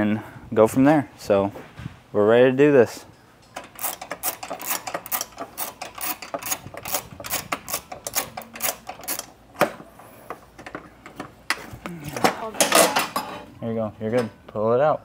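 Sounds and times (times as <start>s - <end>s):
ratchet wrench clicking: 3.6s - 9.4s.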